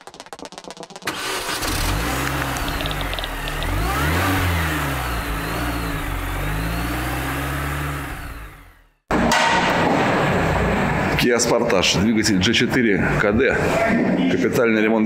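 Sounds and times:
car engine revving: 0:01.0 - 0:09.0.

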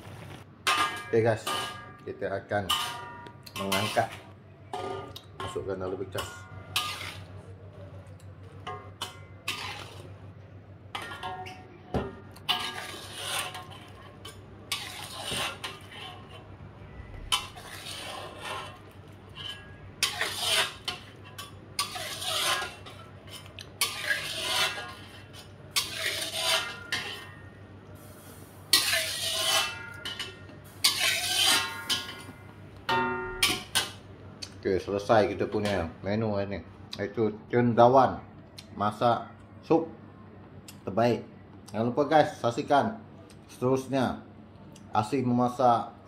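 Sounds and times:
ladle scraping a wok: 0:00.6 - 0:07.5, 0:08.7 - 0:10.2, 0:12.4 - 0:34.0.

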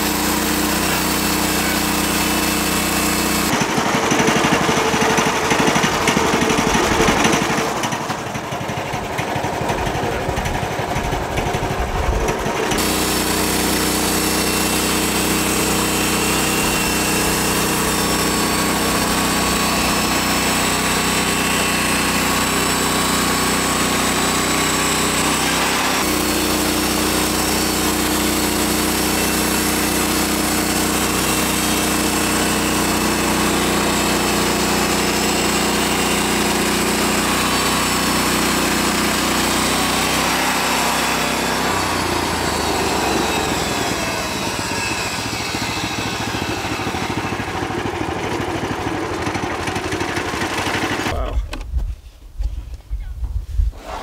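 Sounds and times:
band saw blade cutting log: 0:00.0 - 0:51.2
small gasoline engine running: 0:00.0 - 0:51.3.

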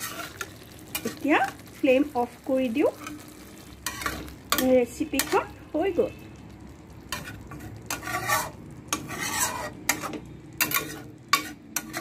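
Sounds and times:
spatula scraping a metal pan: 0:00.0 - 0:01.3, 0:03.8 - 0:05.5, 0:07.1 - 0:12.0.

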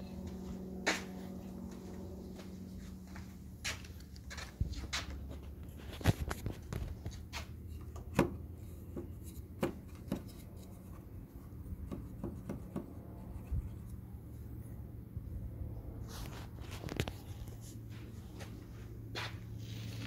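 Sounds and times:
steady low hum: 0:00.0 - 0:20.0
light taps and knocks: 0:06.1 - 0:13.8.

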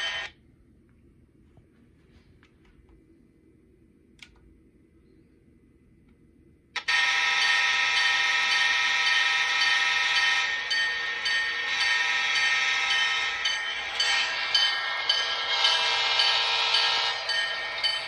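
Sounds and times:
model locomotive air horn: 0:06.8 - 0:13.2.

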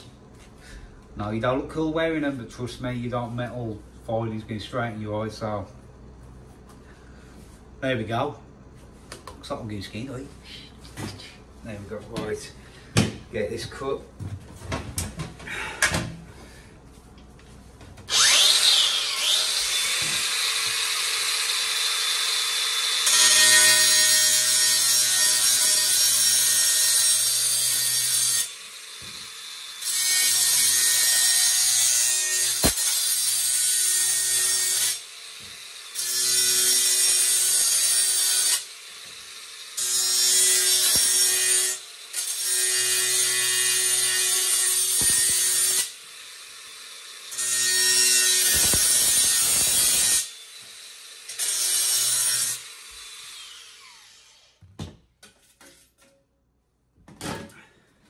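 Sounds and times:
angle grinder cutting metal: 0:18.1 - 0:54.6.

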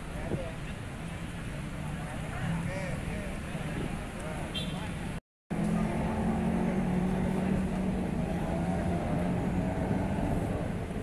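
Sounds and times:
outdoor background noise: 0:00.0 - 0:11.0
low engine hum: 0:05.5 - 0:11.0.

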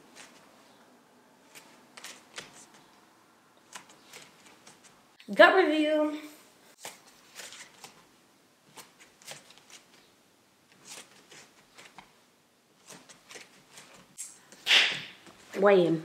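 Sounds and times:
clothing rustling: 0:00.0 - 0:00.8, 0:06.7 - 0:10.1, 0:10.7 - 0:12.2, 0:12.8 - 0:15.6.

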